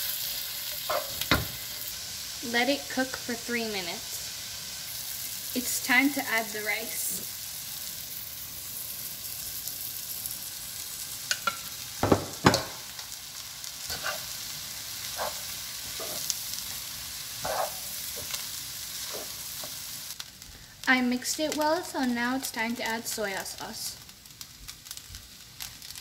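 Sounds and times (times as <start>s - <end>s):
food sizzling in a wok: 0.0s - 26.0s
spatula scraping a pan: 13.8s - 14.4s, 15.0s - 16.4s, 17.4s - 19.8s.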